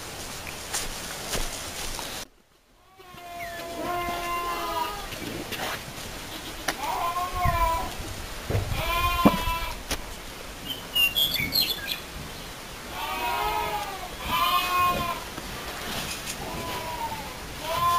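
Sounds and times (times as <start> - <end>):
goat kid bleating: 2.8 - 5.4, 6.2 - 8.0, 8.7 - 9.8, 12.9 - 15.3, 16.4 - 17.9.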